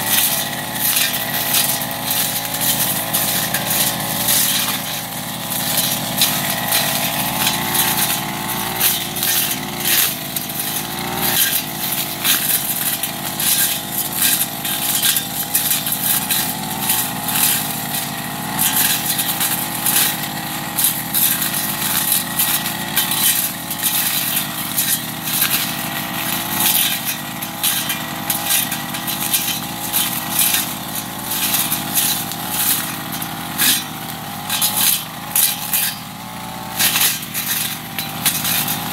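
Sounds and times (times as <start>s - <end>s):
blade slashing through grass: 0.0s - 38.9s
brush cutter engine running: 0.0s - 38.9s.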